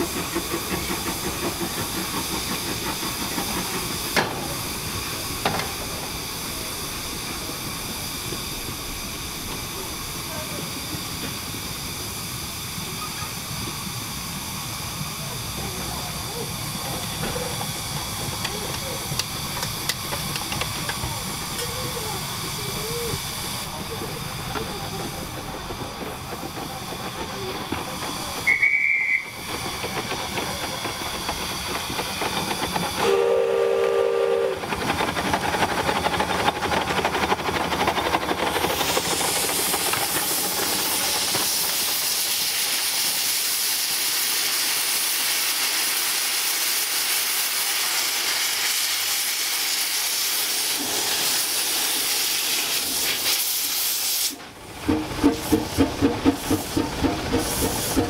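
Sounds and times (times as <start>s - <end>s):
steam hissing from drain cocks: 0.0s - 58.0s
locomotive exhaust beats: 15.0s - 42.1s, 54.6s - 58.0s
high steam whistle: 28.4s - 29.5s, 33.0s - 34.6s
low multi-note steam whistle: 28.4s - 29.5s, 33.0s - 34.6s.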